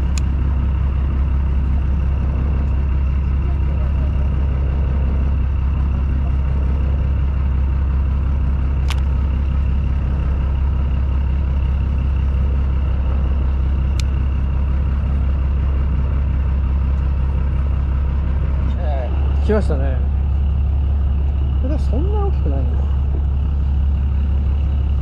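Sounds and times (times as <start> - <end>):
boat engine idling: 0.0 - 25.0
sharp clicks: 8.8 - 9.2.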